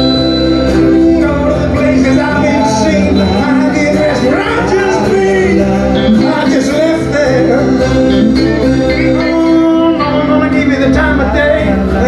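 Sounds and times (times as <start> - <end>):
electric guitar: 0.0 - 12.0
man singing: 0.0 - 12.0
strummed acoustic guitar: 0.0 - 12.0.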